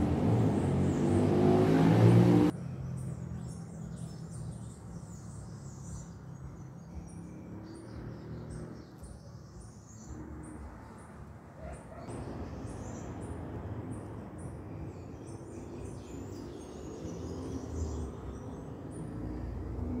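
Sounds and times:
vehicle engine revving: 0.0 - 2.5
birds chirping: 0.0 - 20.0.

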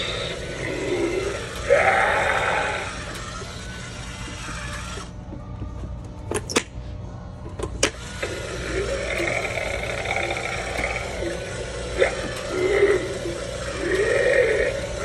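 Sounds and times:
recorded growling voice: 0.0 - 3.0, 8.6 - 15.0
prop motor humming: 0.0 - 5.5, 7.8 - 15.0.

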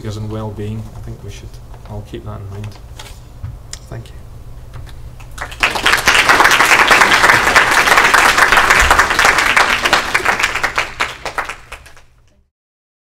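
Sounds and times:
audience applauding: 5.2 - 12.2.

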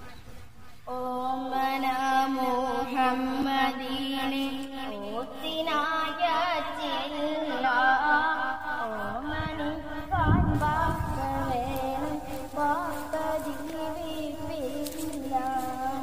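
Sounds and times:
high voice singing: 0.9 - 16.0.

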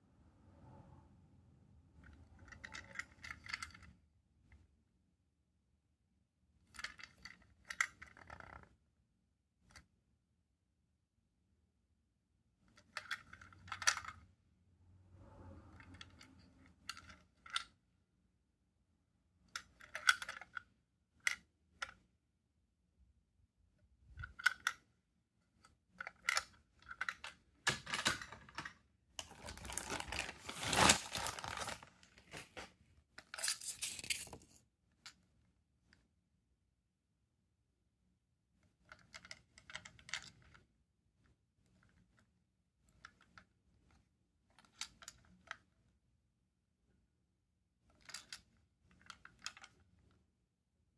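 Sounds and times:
plastic toy train clicks and rattles: 2.0 - 4.0, 6.7 - 8.7, 12.8 - 14.2, 15.8 - 17.8, 19.5 - 22.0, 24.2 - 24.8, 26.0 - 30.3, 38.8 - 40.6, 44.5 - 45.6, 47.9 - 50.1
plastic toy train clicks: 19.6 - 20.6.

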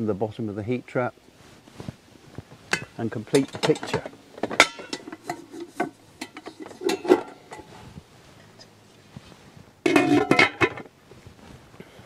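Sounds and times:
glass lid clattering: 2.8 - 7.7, 9.8 - 10.8.

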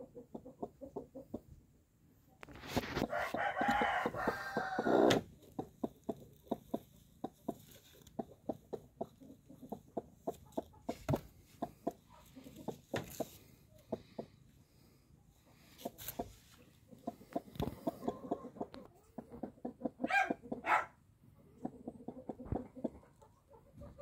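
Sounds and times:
hen clucking: 0.0 - 1.7, 2.7 - 14.5, 15.5 - 24.0.

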